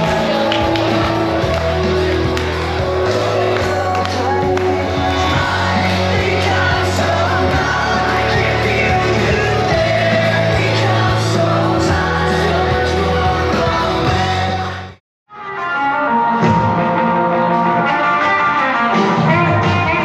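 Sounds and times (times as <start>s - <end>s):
person singing: 0.0s - 15.0s
loud music with heavy bass: 0.0s - 20.0s.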